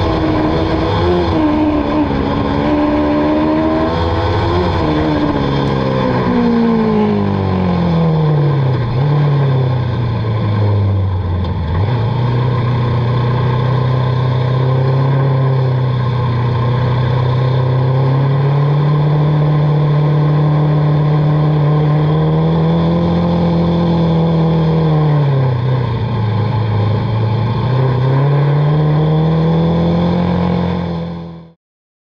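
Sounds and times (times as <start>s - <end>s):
race car engine at high revs: 0.0s - 31.6s.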